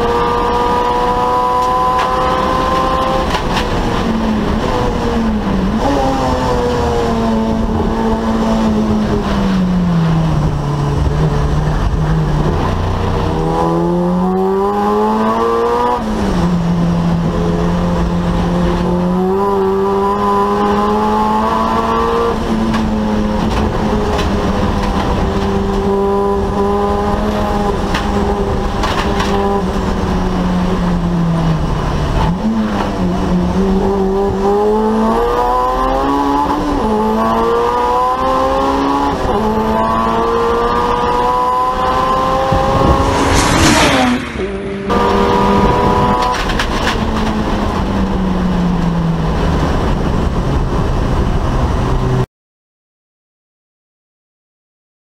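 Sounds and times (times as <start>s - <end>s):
turbocharged race car engine revving: 0.0s - 52.2s
car passing close by: 40.0s - 47.8s.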